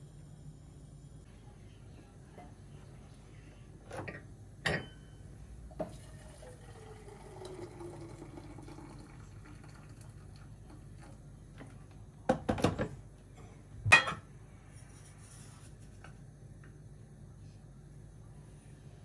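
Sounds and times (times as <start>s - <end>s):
water running into kettle: 5.7s - 11.7s.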